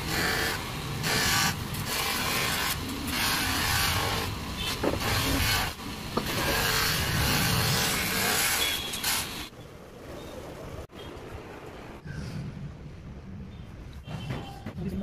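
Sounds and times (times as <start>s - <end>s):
buffing wheel rubbing metal: 0.0s - 9.4s.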